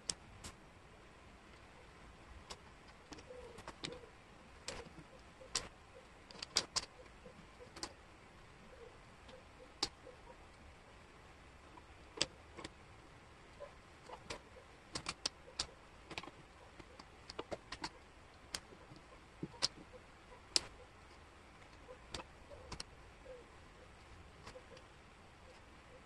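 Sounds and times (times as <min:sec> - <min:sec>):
wooden puzzle pieces clicking: 0:04.6 - 0:05.7, 0:06.3 - 0:08.0, 0:14.1 - 0:19.9, 0:20.5 - 0:20.7.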